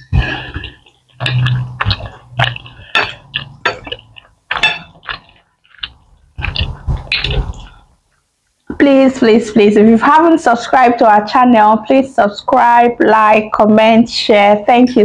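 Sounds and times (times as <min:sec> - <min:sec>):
cutlery clinking on plates: 0:01.2 - 0:05.4.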